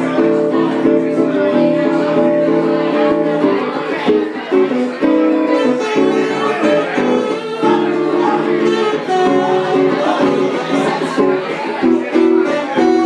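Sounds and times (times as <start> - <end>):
jazz guitar: 0.0 - 13.0
saxophone: 5.1 - 11.2, 11.9 - 13.0.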